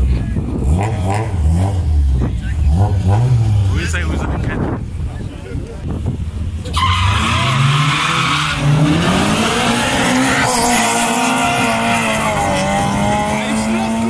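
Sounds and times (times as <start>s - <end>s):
car engines revving: 0.0s - 14.0s
tyre squeal: 6.7s - 8.7s.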